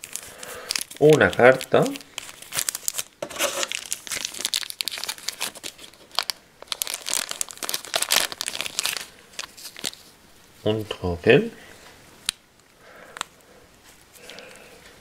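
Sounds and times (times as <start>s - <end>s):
plastic packaging crinkling: 0.0s - 10.2s.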